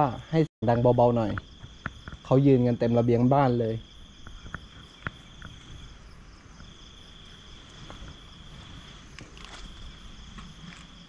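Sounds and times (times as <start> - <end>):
crickets trilling: 0.0 - 11.0
faint clicks and knocks: 1.3 - 2.4, 4.2 - 5.9.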